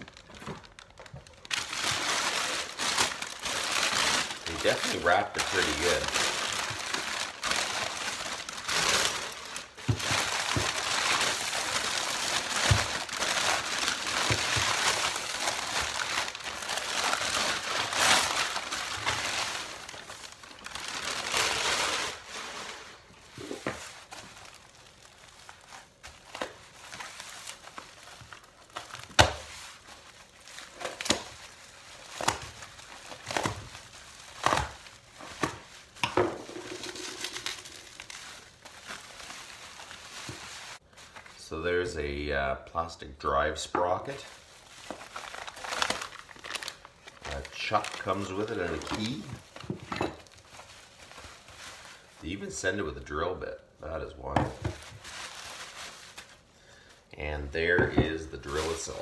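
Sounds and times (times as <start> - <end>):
bubble wrap crinkling: 0.0 - 41.4, 43.8 - 53.3, 53.9 - 57.1, 58.3 - 59.0
paper crumpling and tearing: 0.0 - 41.4, 44.1 - 49.6, 54.7 - 56.5, 58.4 - 59.0.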